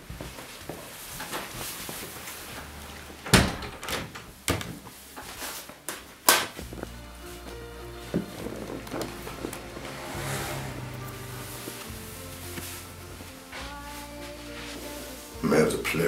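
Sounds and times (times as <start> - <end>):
wooden door thudding shut: 3.2 - 4.7
background music: 6.6 - 16.0.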